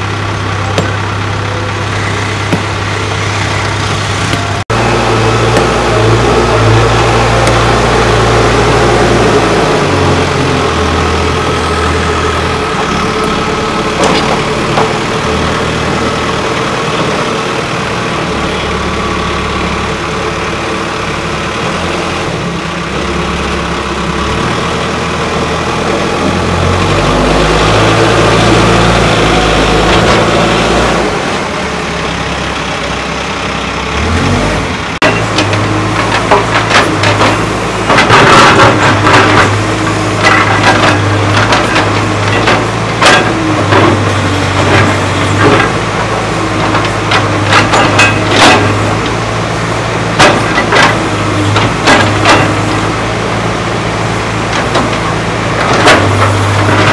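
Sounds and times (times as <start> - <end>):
diesel engine revving: 0.0 - 56.9
metal clank: 46.6 - 49.0.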